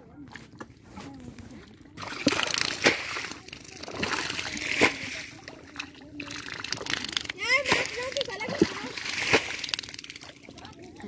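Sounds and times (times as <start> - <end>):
muddy water splashing: 0.0 - 11.0
sharp loud splashes: 2.0 - 5.4, 6.3 - 10.5.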